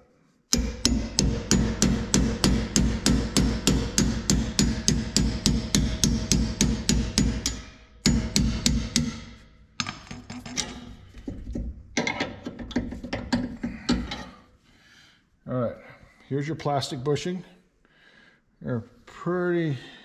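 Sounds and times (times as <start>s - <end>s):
hammer striking steel socket: 0.5s - 14.3s.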